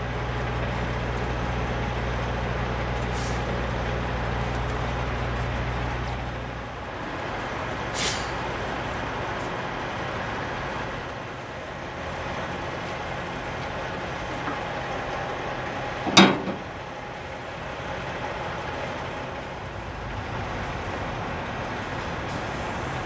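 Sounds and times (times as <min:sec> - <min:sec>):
diesel truck engine idling: 0:00.0 - 0:23.0
air hisses: 0:08.0 - 0:08.4.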